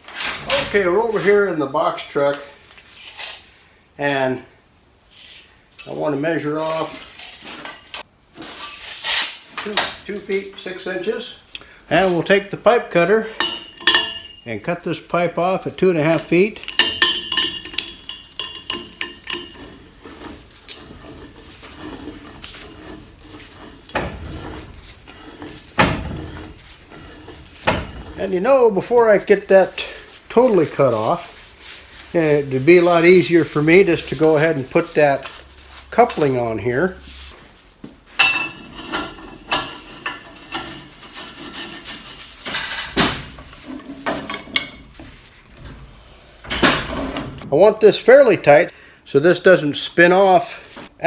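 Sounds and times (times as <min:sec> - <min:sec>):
metal threads rasping: 0:13.3 - 0:14.6, 0:15.6 - 0:29.2, 0:38.2 - 0:45.2
pipe cutter scraping and rattling: 0:13.4 - 0:14.5, 0:15.4 - 0:31.2, 0:38.2 - 0:45.7
sharp metallic knocks: 0:16.6 - 0:19.7.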